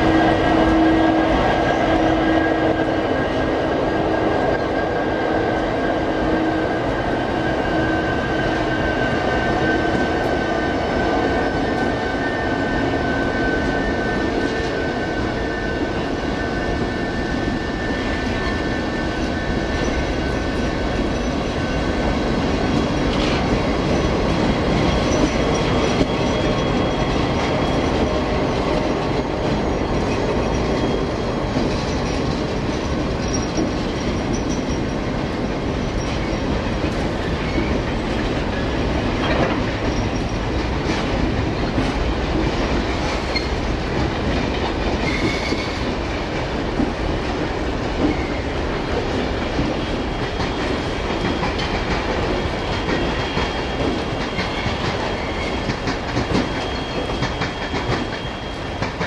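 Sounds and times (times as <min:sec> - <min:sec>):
train wheels rolling on rails: 0:00.0 - 0:59.0.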